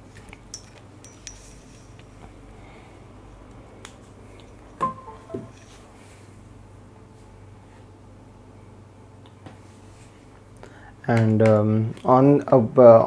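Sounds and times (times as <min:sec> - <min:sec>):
short pitched tone: 0:04.8 - 0:05.7.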